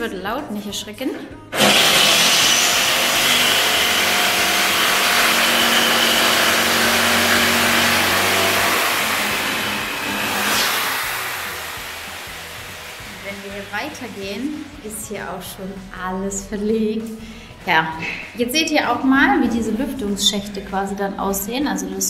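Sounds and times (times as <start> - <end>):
power saw cutting wood: 1.5 - 15.4.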